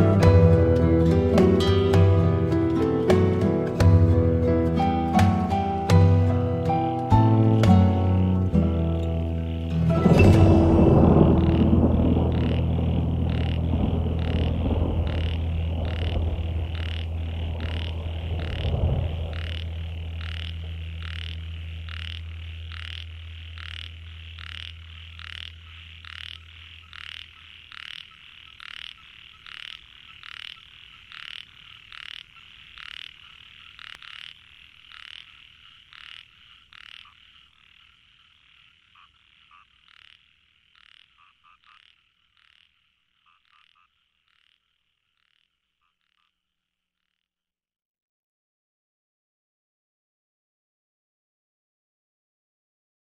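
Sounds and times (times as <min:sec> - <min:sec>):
low drone: 0:00.0 - 0:26.5
frog croaking: 0:04.5 - 0:47.4.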